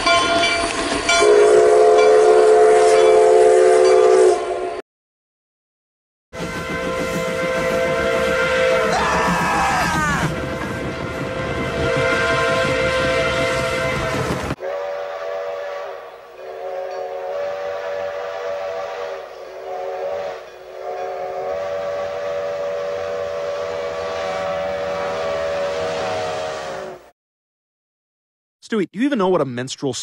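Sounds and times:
steam locomotive chime whistle: 0:00.0 - 0:04.8, 0:06.4 - 0:27.1
faint passing train: 0:06.4 - 0:27.1
several voices yelling: 0:08.9 - 0:10.4.

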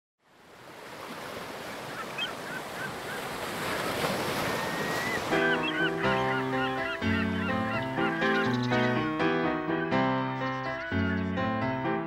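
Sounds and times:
ocean surf washing: 0:00.3 - 0:09.7
seagulls calling: 0:01.1 - 0:11.8
music: 0:05.2 - 0:12.0.

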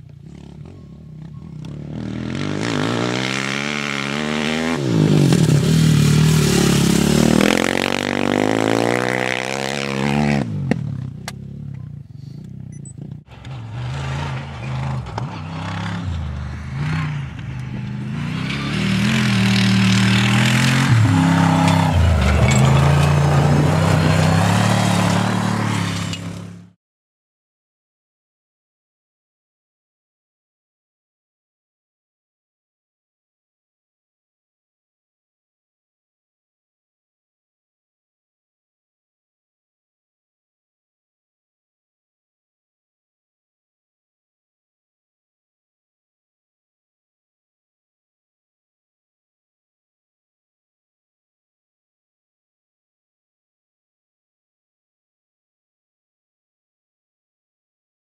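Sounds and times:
off-road motorcycle racing past: 0:00.0 - 0:26.8
rally car racing past: 0:13.3 - 0:26.6.

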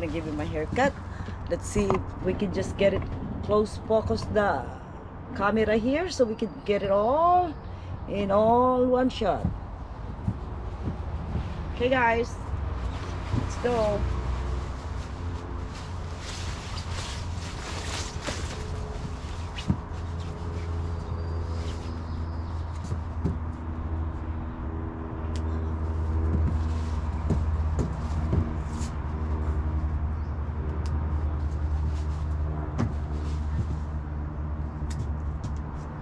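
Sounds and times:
rustling: 0:09.5 - 0:23.6, 0:25.8 - 0:29.5.

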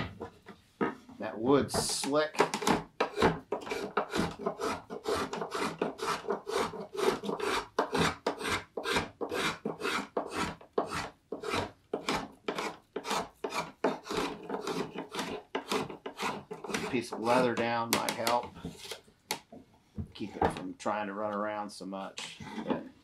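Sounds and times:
drawknife rasping wood: 0:02.0 - 0:19.0, 0:22.4 - 0:22.9.

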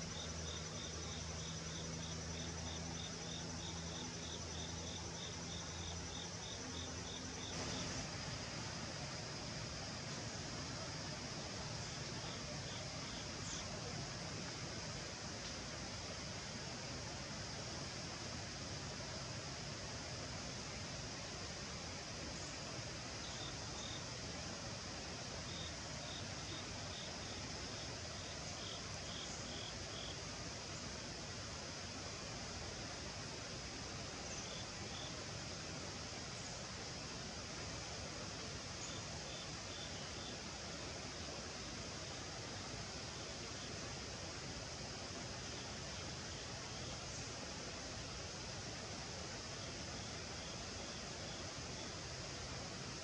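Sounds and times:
insects chirping: 0:00.0 - 0:53.0
high insect buzz: 0:00.1 - 0:13.8.

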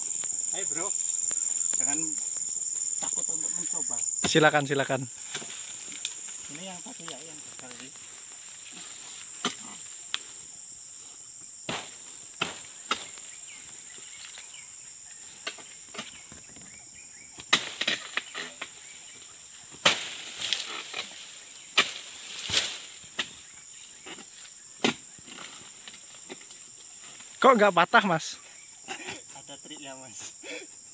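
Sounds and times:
insects buzzing: 0:00.0 - 0:30.9
chisel chopping palm fronds: 0:04.2 - 0:04.6, 0:05.2 - 0:06.1, 0:09.4 - 0:10.3, 0:11.6 - 0:13.2, 0:17.4 - 0:18.8, 0:19.7 - 0:23.4, 0:24.0 - 0:26.6.

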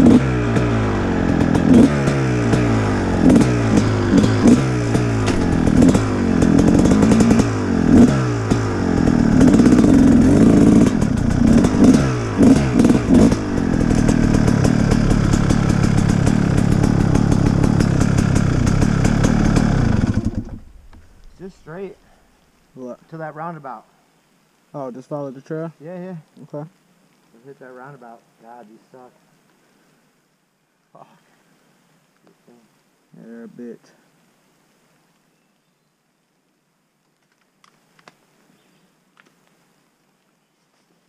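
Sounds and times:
dirt bike engine revving: 0:00.0 - 0:21.9.

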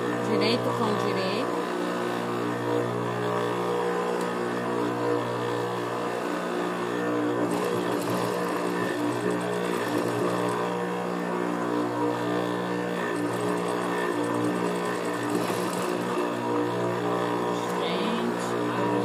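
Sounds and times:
sewing machine motor hum: 0:00.0 - 0:19.0
sewing needle stitching: 0:07.4 - 0:10.6, 0:13.1 - 0:16.2.

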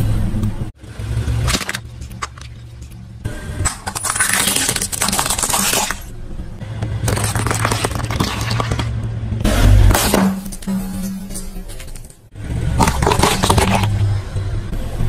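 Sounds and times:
objects crushed under car tyre: 0:03.6 - 0:06.1, 0:07.0 - 0:09.0, 0:09.9 - 0:14.1.

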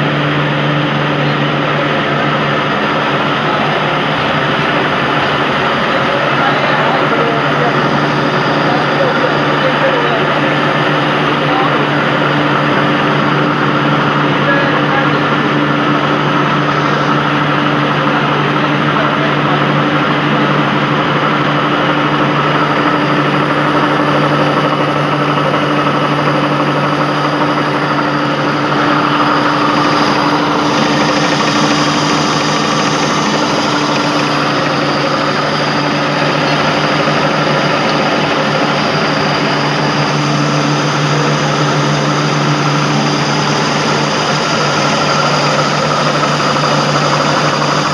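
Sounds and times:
flour mill machinery din: 0:00.0 - 0:47.9.

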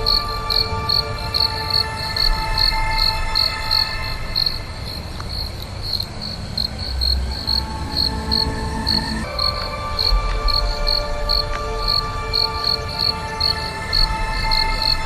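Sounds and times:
background music held tones: 0:00.0 - 0:15.0
crickets chirping: 0:00.0 - 0:15.0.

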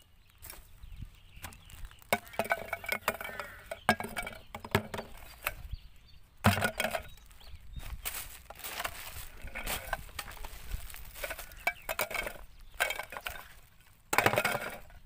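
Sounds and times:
plastic trash clattering: 0:01.4 - 0:05.6, 0:06.4 - 0:07.2, 0:08.4 - 0:15.0
clicks and knocks of plastic items: 0:01.4 - 0:05.7, 0:06.4 - 0:07.4, 0:08.1 - 0:15.0
plastic crinkling: 0:08.0 - 0:13.9.

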